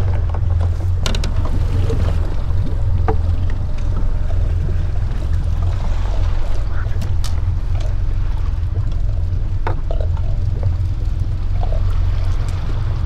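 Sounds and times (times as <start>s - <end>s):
boat rumble: 0.0s - 13.0s.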